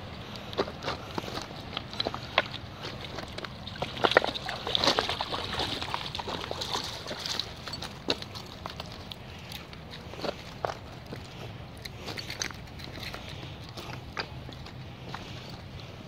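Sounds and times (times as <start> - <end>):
stones clicking underfoot: 0.3 - 15.9
water splashing around dog: 0.8 - 10.9.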